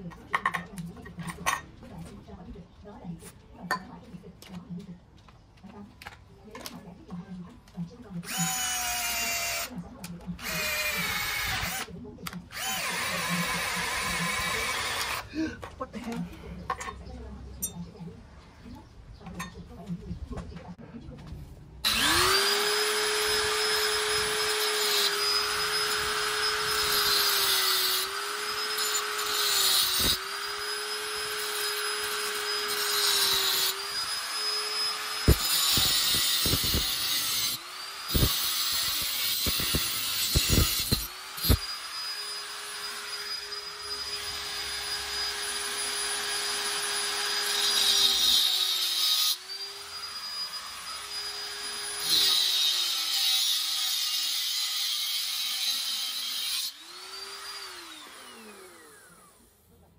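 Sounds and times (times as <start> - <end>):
electric motor whining: 21.8 - 48.2, 56.8 - 59.4.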